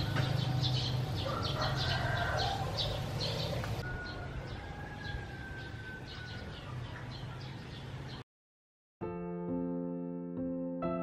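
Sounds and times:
rooster crowing: 0.0s - 6.7s
small birds chirping: 0.0s - 8.2s.

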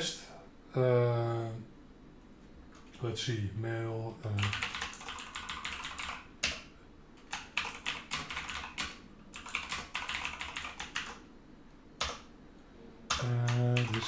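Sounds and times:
computer keyboard typing: 4.3s - 11.2s, 12.0s - 12.3s, 13.1s - 14.0s.

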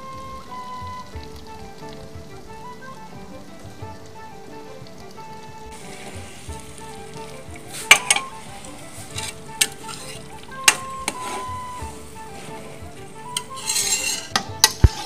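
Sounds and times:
background music: 0.0s - 15.0s
curry sizzling in a pot: 0.0s - 15.0s
metal ladle clinking on pot: 7.8s - 8.4s, 9.1s - 11.5s, 13.3s - 15.0s.

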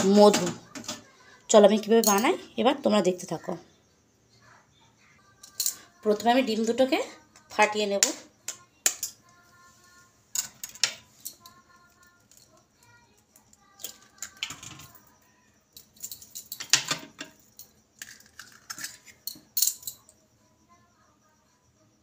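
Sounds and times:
knife clinking metal bowl: 2.0s - 2.4s.

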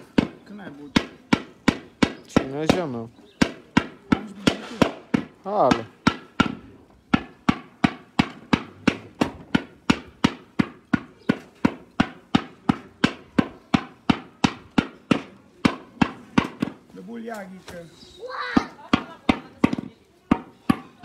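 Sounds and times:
mallet knocking on copper: 0.1s - 16.8s.

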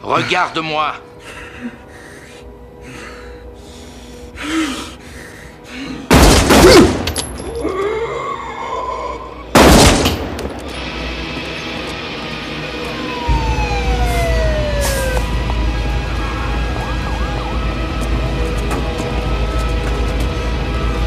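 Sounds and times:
tense film score: 0.0s - 21.0s
pistol shots: 6.1s - 7.1s, 9.6s - 10.6s.

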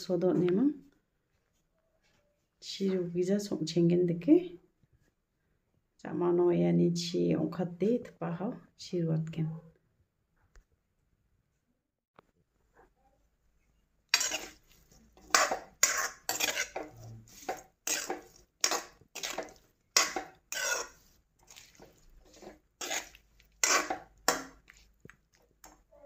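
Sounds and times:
metal spoon scraping a pan: 14.1s - 25.9s.

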